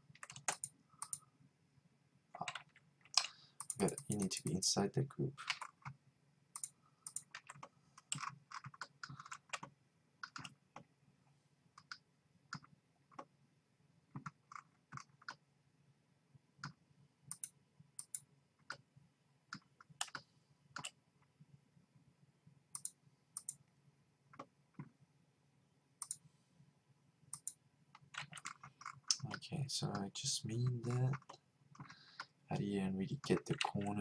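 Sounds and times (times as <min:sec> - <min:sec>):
computer mouse and keyboard clicks: 0:00.1 - 0:01.2, 0:02.4 - 0:04.5, 0:06.6 - 0:10.9, 0:11.8 - 0:13.3, 0:14.1 - 0:15.4, 0:19.5 - 0:21.0, 0:22.7 - 0:23.6, 0:26.0 - 0:26.2, 0:27.3 - 0:32.4
faint low hum: 0:15.2 - 0:34.0.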